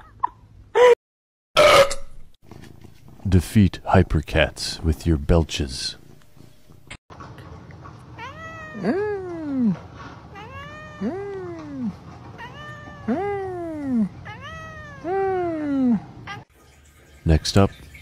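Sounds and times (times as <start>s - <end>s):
cat yowling meows: 8.2s - 16.4s.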